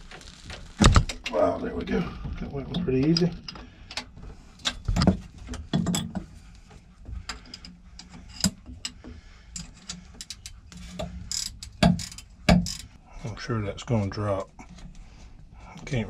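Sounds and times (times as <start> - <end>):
metal clanks: 2.6 - 6.4
wrench clicking on a nut: 11.3 - 12.9.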